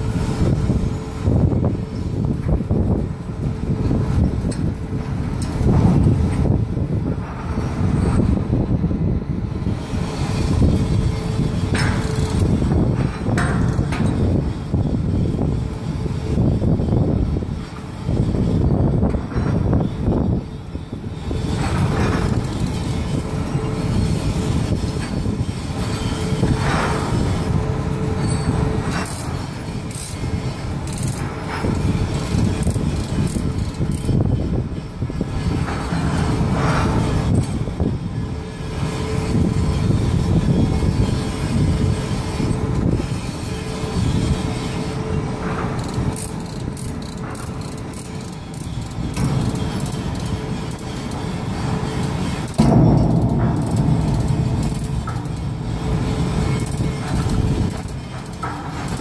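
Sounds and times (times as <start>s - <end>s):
faint constant hum: 0.0s - 59.0s
low machinery rumble: 0.0s - 59.0s
steel chains clinking: 11.8s - 12.6s, 21.6s - 23.3s, 28.2s - 34.3s, 45.7s - 59.0s
ratchet binder being worked: 11.8s - 14.2s, 21.4s - 23.2s, 28.9s - 34.3s, 45.5s - 59.0s.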